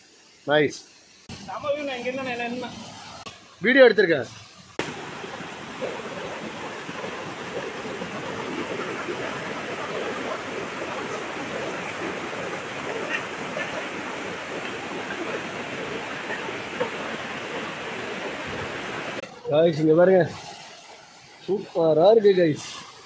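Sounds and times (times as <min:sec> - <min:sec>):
waterfall rushing onto rock: 0:04.0 - 0:19.3.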